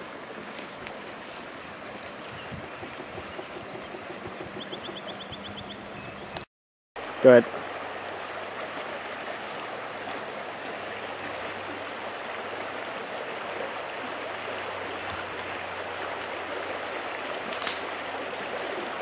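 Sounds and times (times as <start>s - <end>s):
brook flowing over stones: 7.0s - 19.0s.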